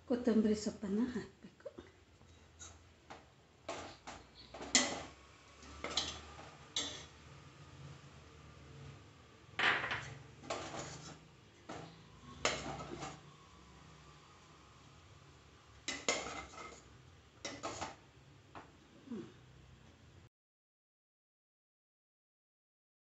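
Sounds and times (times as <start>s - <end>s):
metal spoon scraping steel bowl: 3.7s - 7.2s, 10.4s - 13.3s, 15.8s - 18.0s.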